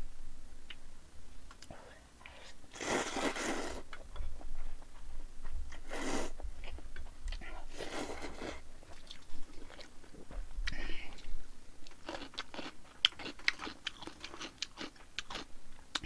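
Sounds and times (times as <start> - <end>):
noodles being slurped: 2.7 - 3.8
chewing: 6.6 - 16.0.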